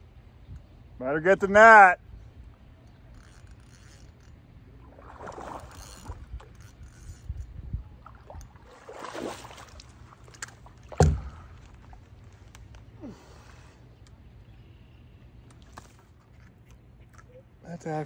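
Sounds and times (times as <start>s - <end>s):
sharp thump: 11.0s - 11.4s.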